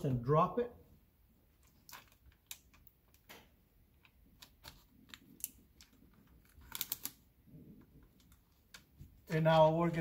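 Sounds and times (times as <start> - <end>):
plastic film crackling: 4.6 - 7.3.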